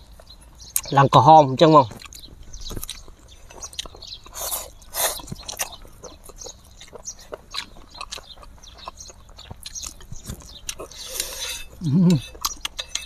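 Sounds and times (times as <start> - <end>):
chewing with wet mouth clicks: 0.1 - 0.9, 1.8 - 13.0
noodle slurping: 10.2 - 12.5.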